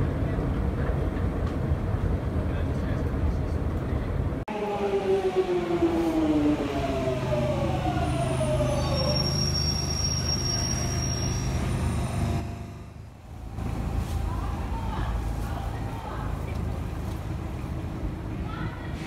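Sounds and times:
low train rumble: 0.0 - 19.0
train motors whining: 4.5 - 15.1
high brake squeal: 7.8 - 13.0.

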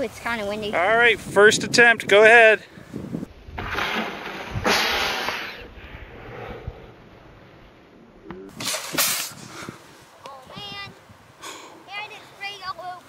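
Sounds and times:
water rocket launch hiss: 4.0 - 5.7, 8.6 - 9.5.

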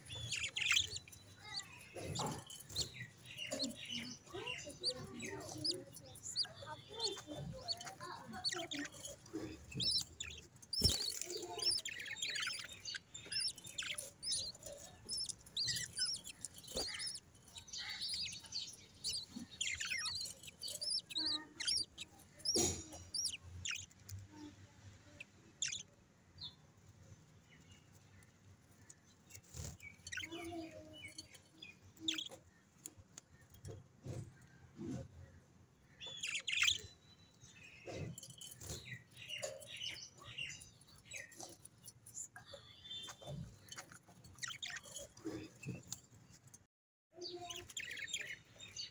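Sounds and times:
budgerigars chirping: 0.0 - 24.0, 25.5 - 25.9, 29.4 - 30.6, 32.0 - 32.4, 36.0 - 37.0, 37.7 - 45.8, 47.3 - 48.9.

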